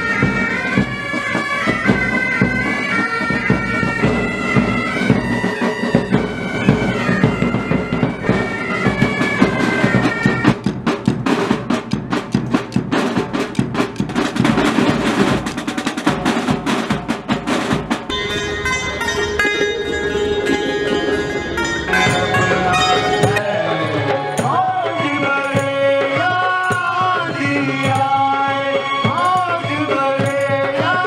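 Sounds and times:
bagpipes playing melody: 0.0s - 10.6s, 18.1s - 25.6s
snare and bass drums: 0.0s - 18.1s.

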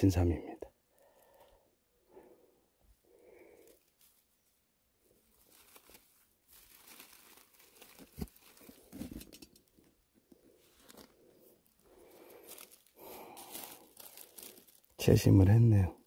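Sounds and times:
dry leaves crinkling: 3.4s - 4.5s, 5.1s - 9.4s, 10.6s - 15.6s.

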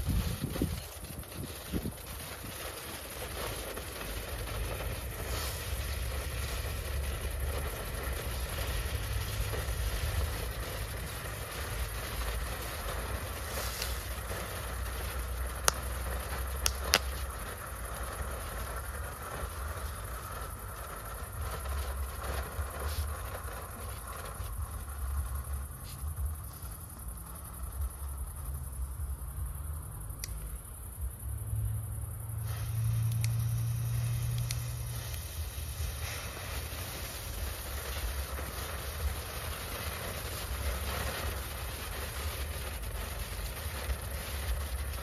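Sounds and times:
wind rumbling on microphone: 0.0s - 29.6s
firecrackers cracking: 0.0s - 31.7s, 32.3s - 45.0s.

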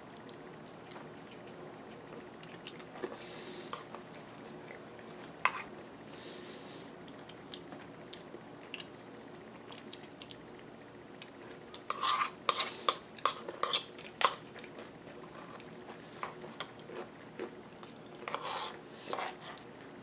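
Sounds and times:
person chewing: 0.2s - 5.7s.

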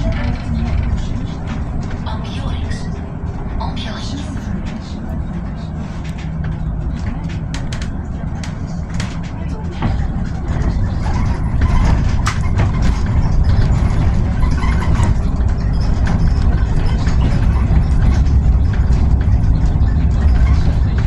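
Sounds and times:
bodywork rattles and clicks: 0.0s - 21.0s
bus tyre and road rumble: 0.0s - 21.0s.

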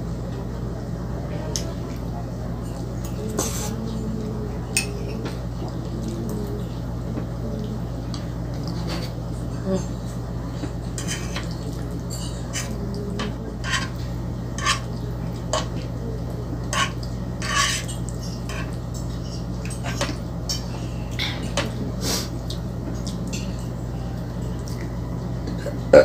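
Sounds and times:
fork scraping a frying pan: 11.0s - 11.5s, 12.1s - 14.9s, 16.7s - 20.7s.

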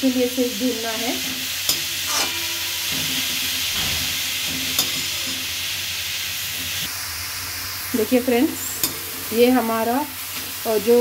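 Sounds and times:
vegetables sizzling in ghee: 0.0s - 11.0s
spoon clicking against pan: 8.8s - 9.0s.

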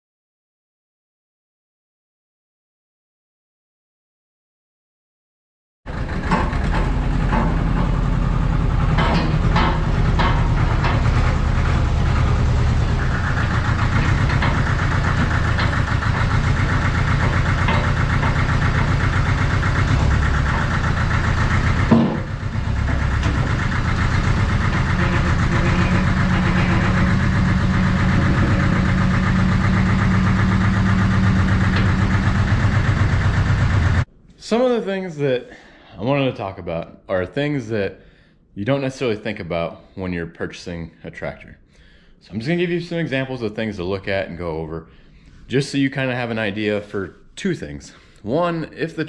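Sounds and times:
tractor diesel engine running: 5.9s - 34.1s.

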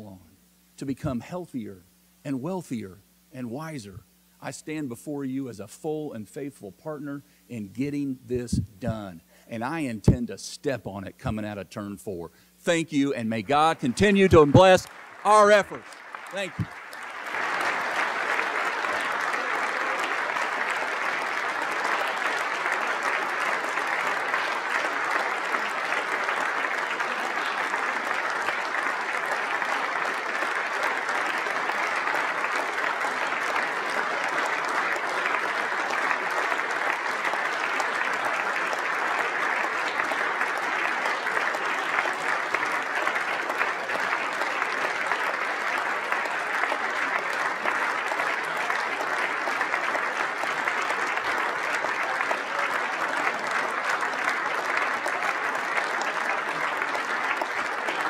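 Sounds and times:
large audience applauding: 12.7s - 58.0s.

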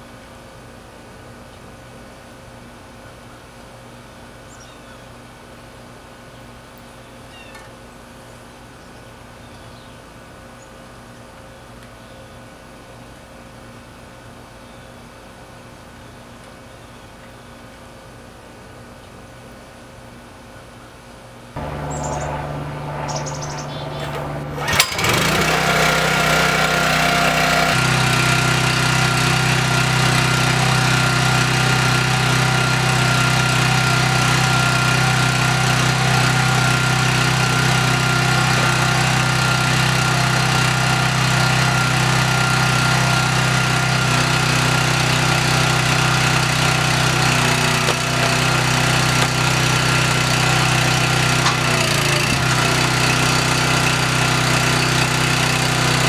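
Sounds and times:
small gasoline engine running: 21.6s - 56.0s.

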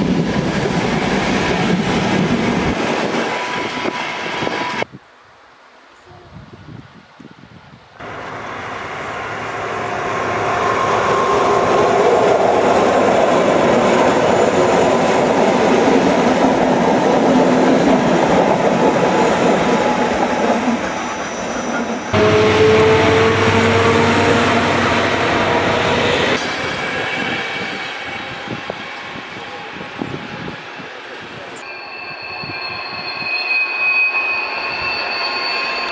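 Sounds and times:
train wheels on rails: 0.0s - 4.9s, 8.0s - 35.9s
diesel locomotive engine: 8.0s - 35.9s.

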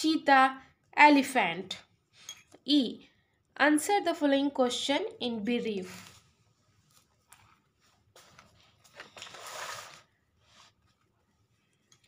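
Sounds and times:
paper rustling: 5.6s - 11.8s.

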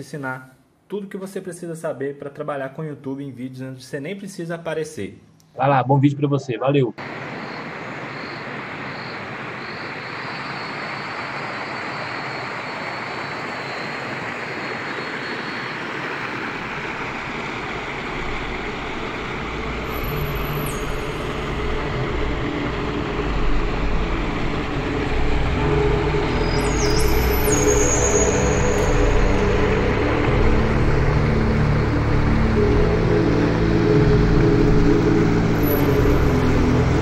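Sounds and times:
low hum: 13.5s - 37.0s.

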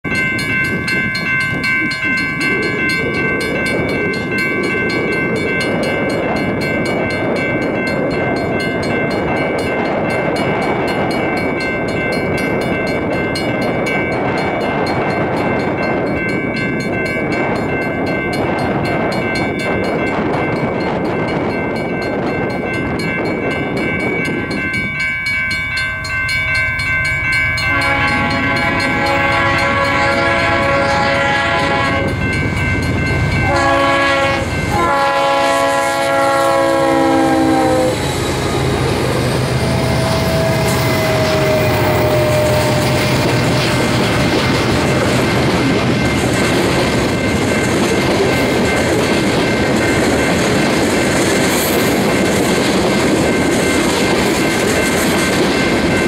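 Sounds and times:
train rumble: 0.0s - 56.0s
train horn chord: 27.6s - 32.4s, 33.3s - 38.9s, 39.5s - 44.1s.

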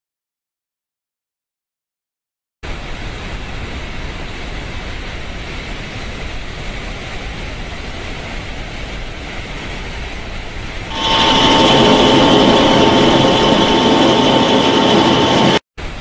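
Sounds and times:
water rushing through pipeline: 2.7s - 15.6s.

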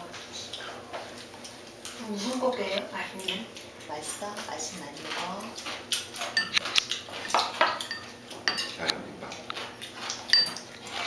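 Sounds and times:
cutlery clinking on ceramic plates: 6.2s - 9.0s, 9.6s - 10.7s.

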